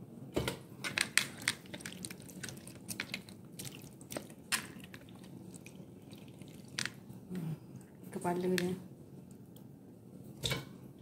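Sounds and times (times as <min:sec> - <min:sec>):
wet squelching of meat: 0:01.3 - 0:07.0.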